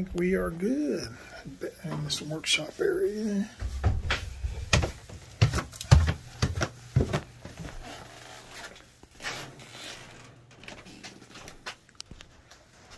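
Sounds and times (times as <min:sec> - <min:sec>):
footsteps on hard floor: 0:03.6 - 0:07.9.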